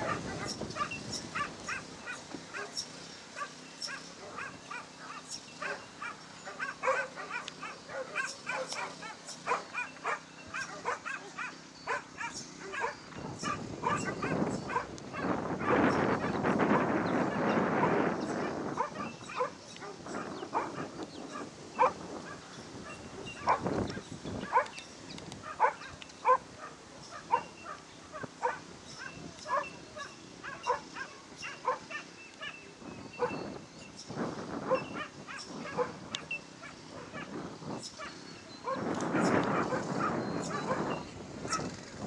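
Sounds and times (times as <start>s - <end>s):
dog barking: 0.0s - 2.8s, 4.2s - 15.9s, 22.9s - 23.6s, 25.4s - 27.5s, 28.2s - 32.0s, 34.7s - 36.0s, 38.7s - 41.7s.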